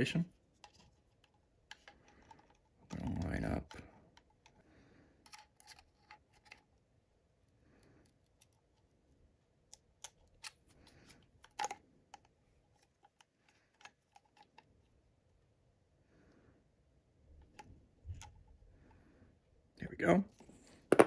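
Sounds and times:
small clicks of plastic parts: 0:00.6 - 0:04.6, 0:05.2 - 0:06.8, 0:09.6 - 0:14.8.

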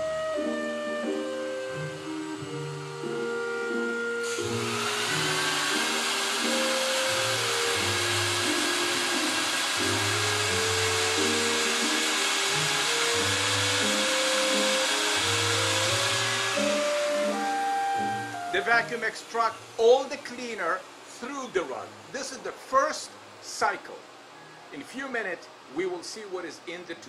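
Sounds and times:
vacuum extraction motor suction: 0:00.0 - 0:20.2.

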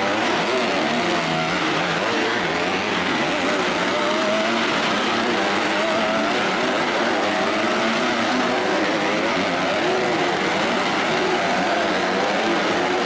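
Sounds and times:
motocross bike engines revving: 0:00.0 - 0:13.0.

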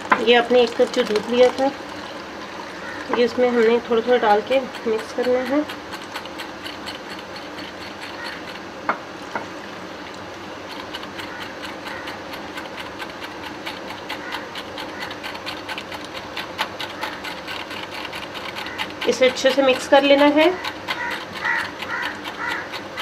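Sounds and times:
whisk knocking: 0:03.0 - 0:08.6, 0:10.7 - 0:23.0.

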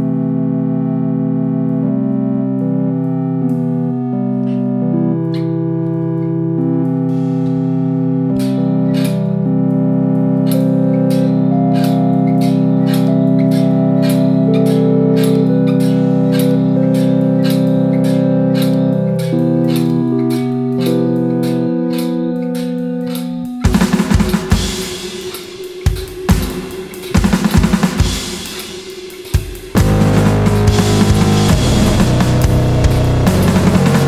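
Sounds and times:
organ-like synthesizer chords: 0:00.0 - 0:34.0
low bass note: 0:29.8 - 0:34.0.

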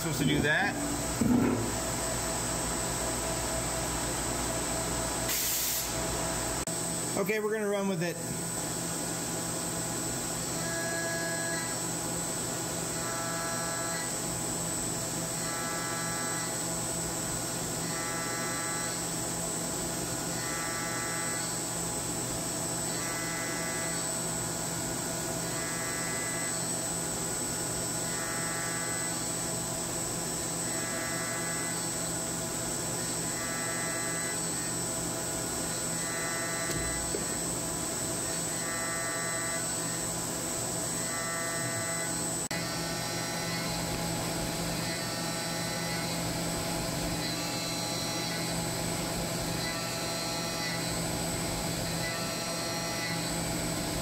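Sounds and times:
milling machine spindle whine: 0:15.3 - 0:24.6, 0:25.4 - 0:54.0.

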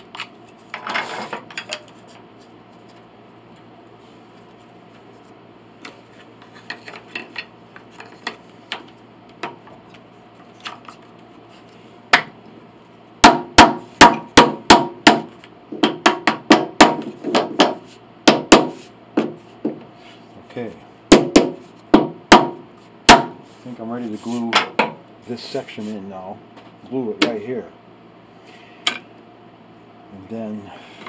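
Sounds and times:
hammer tapping wood: 0:13.2 - 0:19.4, 0:21.1 - 0:23.4.

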